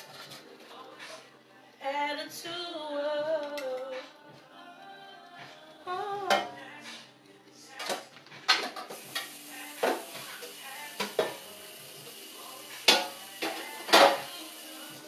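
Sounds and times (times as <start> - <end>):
tap water running: 8.8 - 15.0
metal pan clanking in sink: 12.9 - 14.3.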